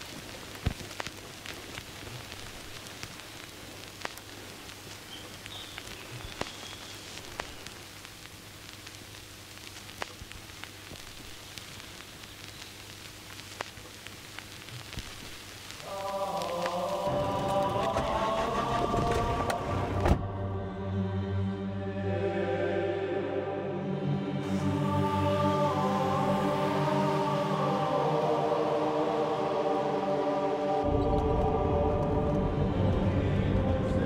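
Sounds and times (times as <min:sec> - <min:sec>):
wet forest ambience hiss: 0:00.0 - 0:20.1, 0:24.4 - 0:34.0
music: 0:15.9 - 0:34.0.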